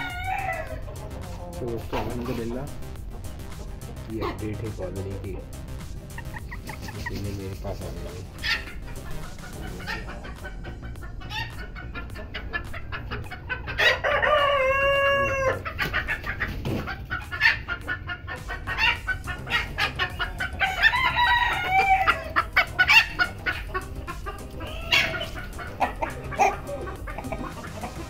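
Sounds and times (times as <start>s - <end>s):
rooster crowing: 0.0s - 0.9s, 13.8s - 15.7s, 20.4s - 23.2s
chickens clucking: 0.0s - 28.0s.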